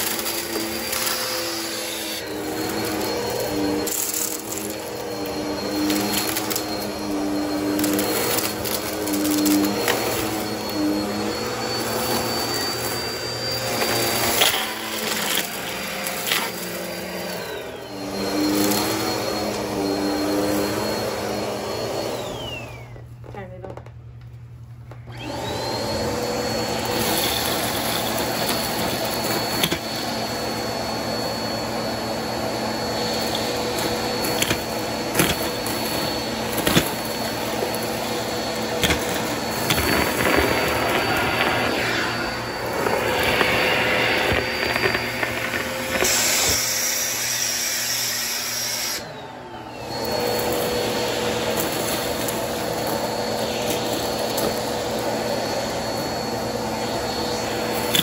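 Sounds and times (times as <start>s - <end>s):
vacuum cleaner motor whine: 0.0s - 58.0s
debris clicking up vacuum hose: 32.8s - 49.0s.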